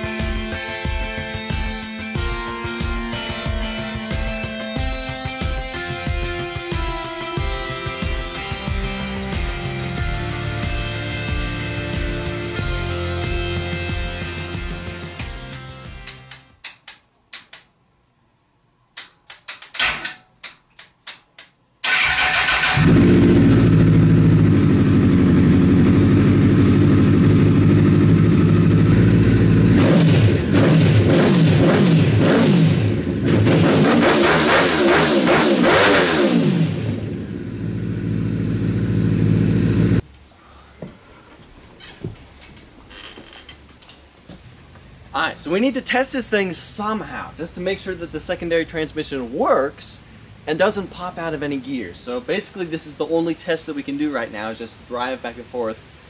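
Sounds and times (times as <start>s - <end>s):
sharp clicks: 19.0s - 21.6s
motorcycle engine revving: 21.9s - 40.0s.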